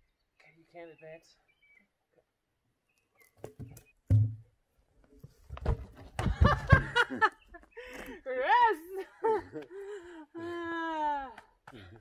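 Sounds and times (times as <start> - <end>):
log tumbling down rocky slope: 5.2 - 7.0.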